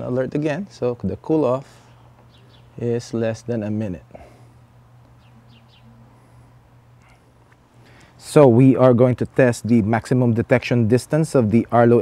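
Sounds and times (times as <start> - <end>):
steady low hum: 0.0 - 12.0
faint bird chirps: 1.8 - 2.8, 5.1 - 6.4.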